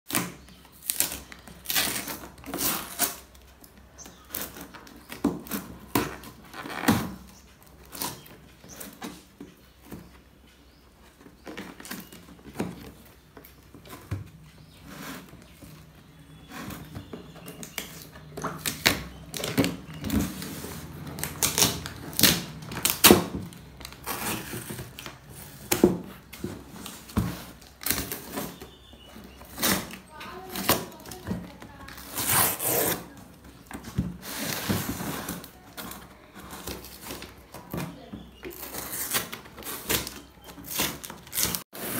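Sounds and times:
tape peeling off cardboard: 0:00.1 - 0:03.3, 0:32.0 - 0:33.3, 0:38.5 - 0:41.9
hands handling cardboard: 0:00.1 - 0:41.9.

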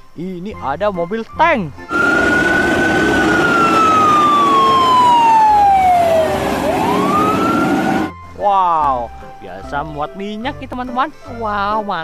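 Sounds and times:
fire truck siren wailing: 0:01.9 - 0:08.2
truck engine rumble: 0:01.9 - 0:08.2.

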